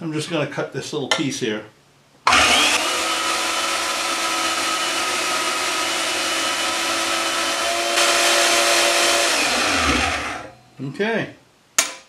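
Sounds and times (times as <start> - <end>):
bandsaw motor whine: 2.3 - 10.6.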